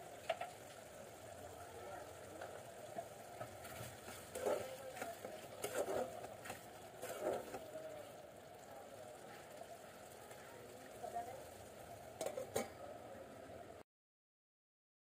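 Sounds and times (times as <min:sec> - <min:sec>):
gravy bubbling: 0:00.0 - 0:13.8
metal spatula scraping pan: 0:05.4 - 0:07.6.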